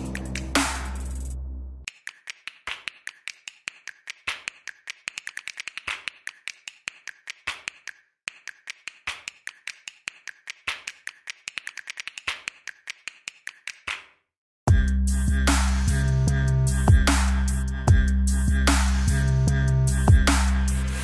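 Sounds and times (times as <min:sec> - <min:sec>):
sharp clicks: 0:01.9 - 0:14.0.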